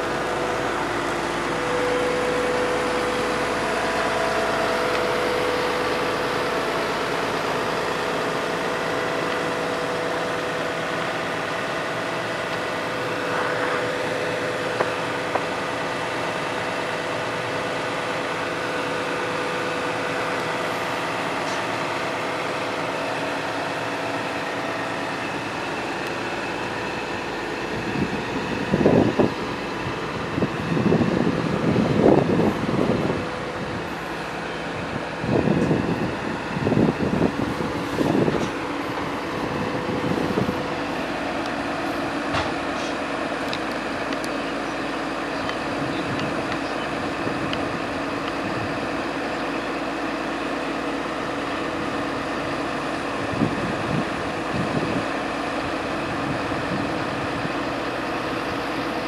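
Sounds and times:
excavator diesel engine under load: 0:00.0 - 0:59.0.

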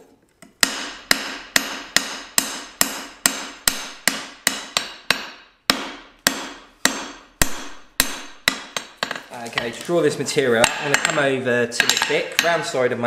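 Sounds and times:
hammer striking steel on anvil: 0:00.6 - 0:09.2, 0:10.6 - 0:11.2, 0:11.8 - 0:12.7.

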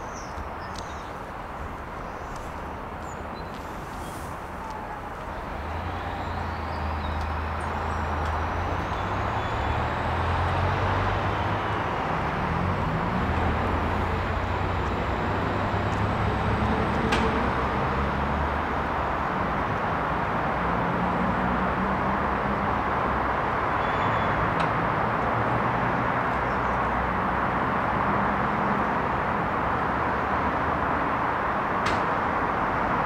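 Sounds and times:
heavy vehicle engine humming: 0:00.0 - 0:20.8
road traffic: 0:00.0 - 0:33.0.

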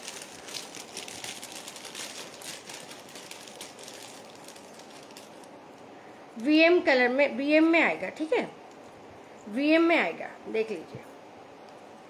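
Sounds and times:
faint rustling and crinkling: 0:00.0 - 0:05.9.

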